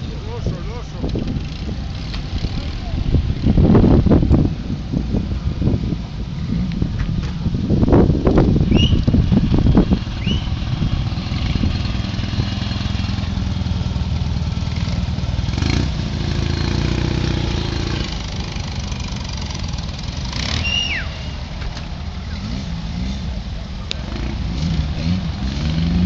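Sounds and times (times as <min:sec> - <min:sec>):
small car engines rumbling: 0:00.0 - 0:26.0
high chirp: 0:20.6 - 0:21.5.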